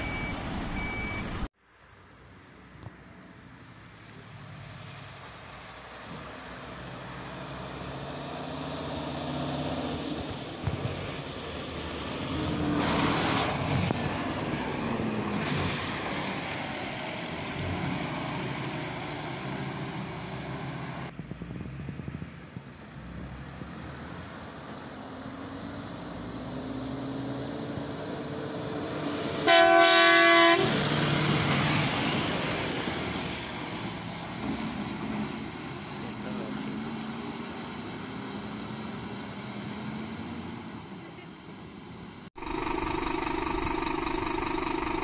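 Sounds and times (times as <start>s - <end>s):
fire engines driving past: 0.0s - 45.0s
air horn blast: 29.4s - 30.7s.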